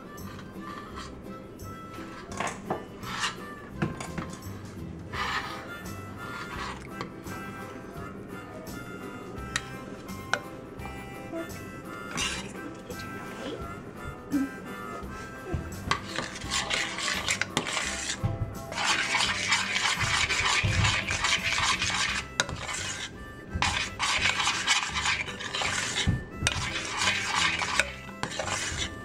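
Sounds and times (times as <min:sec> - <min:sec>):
metal spoon scraping saucepan: 0:00.2 - 0:01.2, 0:02.0 - 0:07.2, 0:12.1 - 0:13.1, 0:15.9 - 0:29.0.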